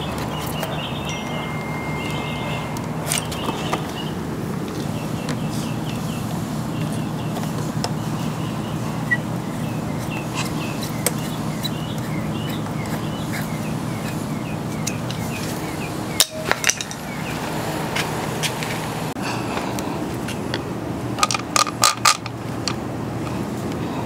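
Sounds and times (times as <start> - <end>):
steady low hum: 0.0 - 21.2
short high chirps: 1.0 - 3.3.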